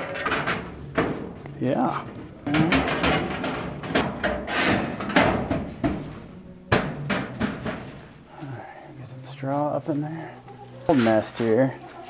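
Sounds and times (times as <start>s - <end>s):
knocks and thuds on sheet metal: 0.0s - 1.4s, 2.5s - 8.2s
straw rustling: 8.0s - 12.0s.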